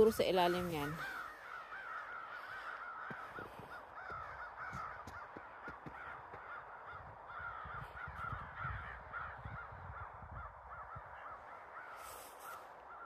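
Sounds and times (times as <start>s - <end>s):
birds calling: 0.0s - 13.0s
footsteps in snow: 11.8s - 13.0s.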